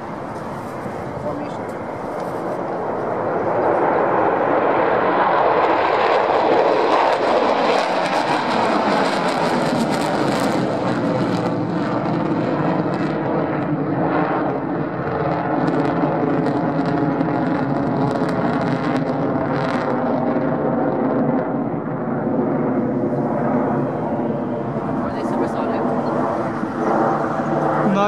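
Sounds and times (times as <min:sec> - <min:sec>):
fighter jets flying overhead: 0:00.0 - 0:28.0.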